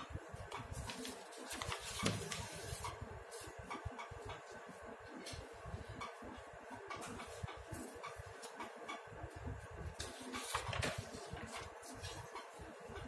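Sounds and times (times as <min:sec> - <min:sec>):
paper rustling and sliding: 0:00.7 - 0:03.4, 0:10.0 - 0:12.3.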